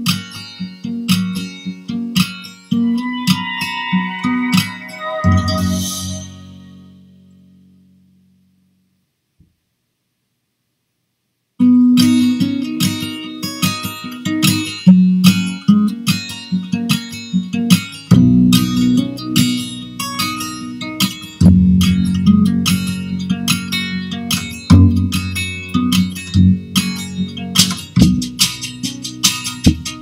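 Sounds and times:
guitar plucked and strummed: 0.0 - 8.0, 11.6 - 30.0.

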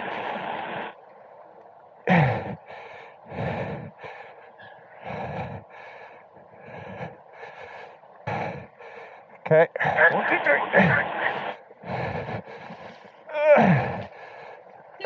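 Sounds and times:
person breathing heavily: 2.1 - 10.0, 11.8 - 14.7.

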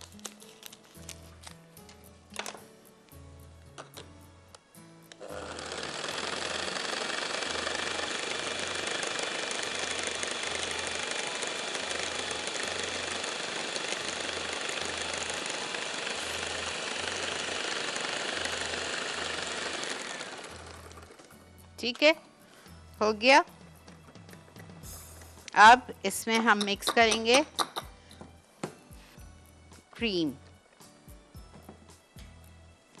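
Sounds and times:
electric hand mixer whisking: 5.2 - 21.5.

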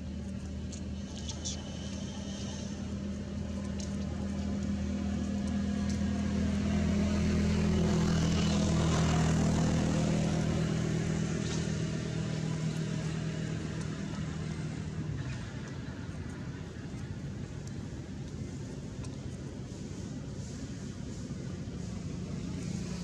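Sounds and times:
vehicle engine passing: 3.8 - 15.0.

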